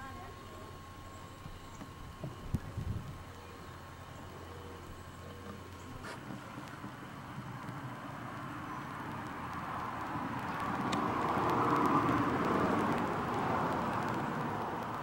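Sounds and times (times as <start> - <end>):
car passing on road: 6.0 - 15.0.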